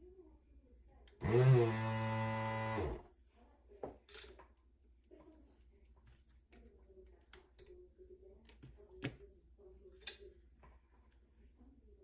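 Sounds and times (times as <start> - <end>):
vacuum pump humming: 1.2 - 3.0.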